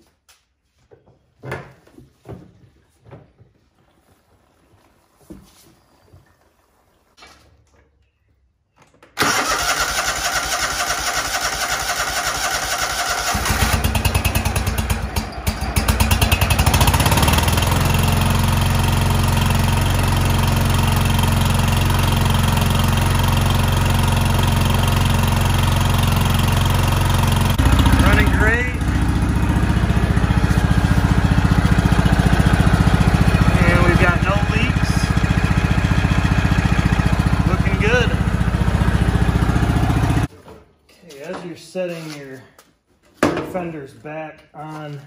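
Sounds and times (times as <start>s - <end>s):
lawn tractor engine running: 9.2s - 40.3s
starter cranking engine: 9.2s - 40.3s.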